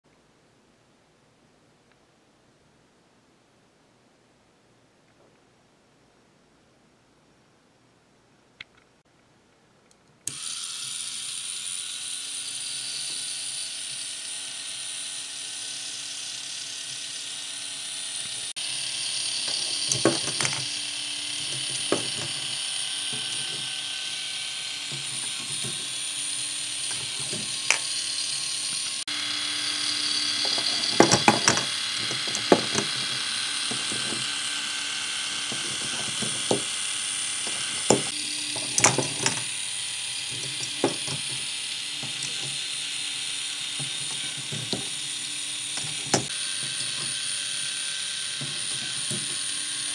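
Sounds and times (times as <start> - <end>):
toy motor whine with gear chatter: 10.2 - 49.9.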